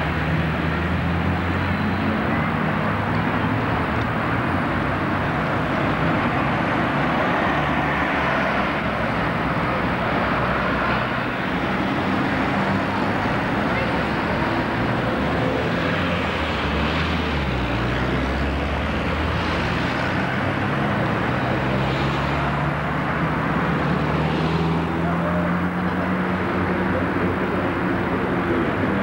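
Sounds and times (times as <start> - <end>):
road noise hiss: 0.0 - 29.0.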